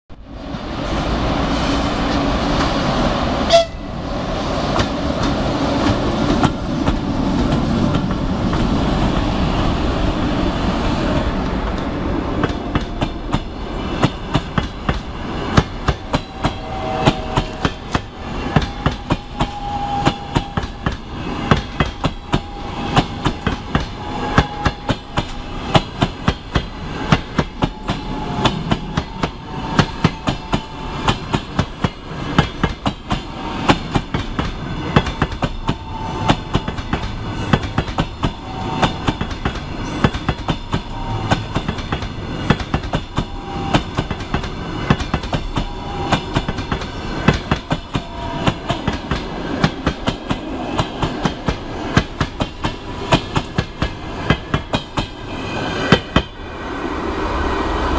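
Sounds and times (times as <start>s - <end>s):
electric locomotive rushing past: 0.2s - 57.9s
wheels clacking over rail joints: 10.9s - 55.2s.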